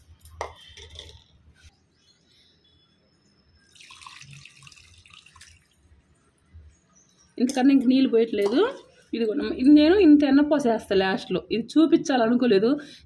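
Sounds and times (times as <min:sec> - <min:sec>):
water splashing into bowl: 0:03.7 - 0:05.8.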